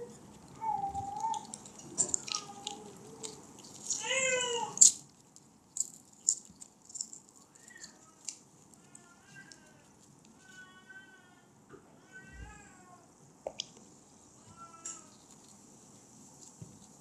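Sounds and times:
wrapper crinkling: 0:00.0 - 0:10.7.

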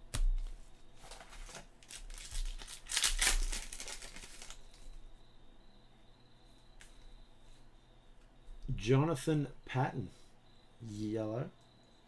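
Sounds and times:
plastic wrapper crinkling and tearing: 0:01.1 - 0:04.8.

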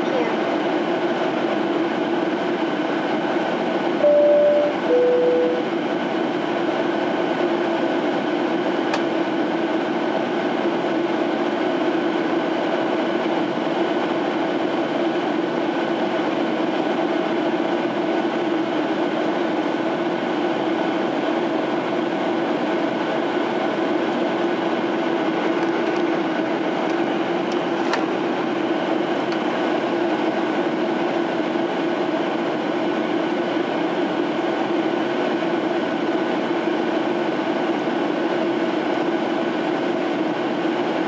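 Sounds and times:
jet engine hum: 0:00.0 - 0:40.9
two-tone cabin chime: 0:04.0 - 0:05.6.

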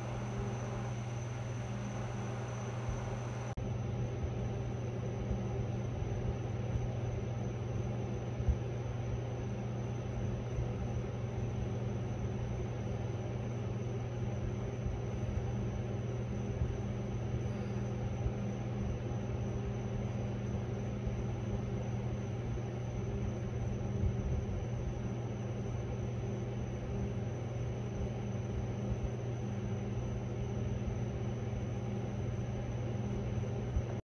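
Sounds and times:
engine and road rumble: 0:00.0 - 0:03.6
constant low hum: 0:00.0 - 0:34.0.

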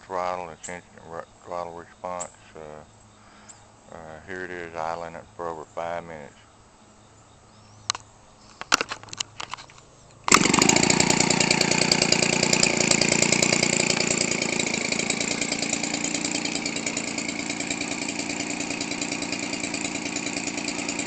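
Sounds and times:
two-stroke engine idling: 0:10.3 - 0:21.0.

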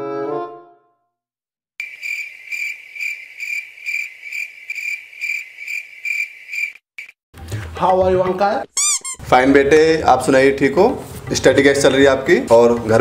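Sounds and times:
cricket chirping: 0:01.8 - 0:07.2.

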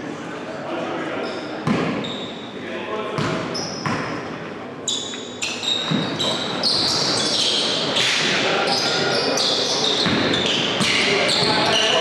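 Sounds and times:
sneakers squeaking on wooden floor: 0:01.2 - 0:02.5, 0:03.2 - 0:04.2, 0:04.9 - 0:12.0.

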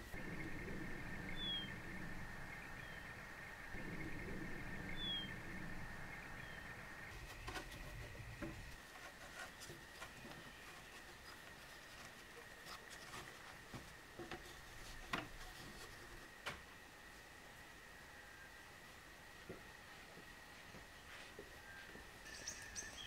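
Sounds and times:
steady high-pitched tone: 0:00.0 - 0:07.4
bird chirp: 0:00.0 - 0:08.8, 0:21.6 - 0:23.0
low outdoor rumble: 0:00.0 - 0:23.0.

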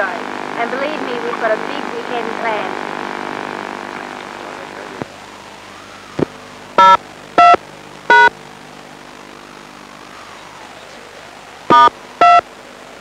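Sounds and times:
radio hum and hiss: 0:00.0 - 0:13.0
touch-tone beeps: 0:06.8 - 0:08.3, 0:11.7 - 0:12.4.

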